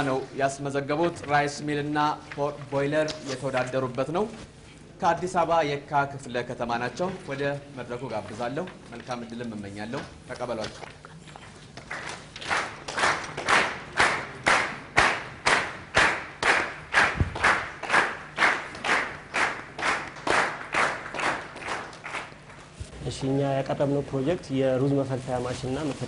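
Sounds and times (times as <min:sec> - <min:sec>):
audience clapping in rhythm: 0:11.7 - 0:22.8.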